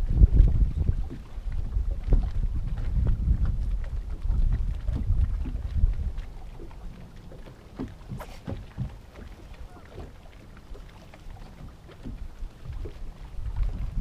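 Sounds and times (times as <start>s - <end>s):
water lapping against hull: 0.0s - 14.0s.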